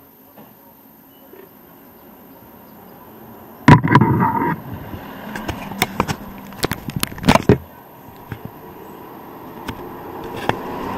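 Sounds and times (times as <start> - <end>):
steady traffic hum: 2.1 - 10.9
sharp clicks and knocks: 3.7 - 8.6
bus passing close by: 8.9 - 10.9.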